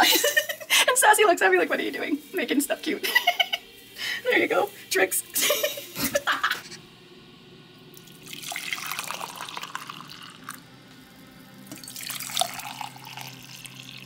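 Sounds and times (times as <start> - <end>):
coffee pouring into a mug: 7.9 - 14.0.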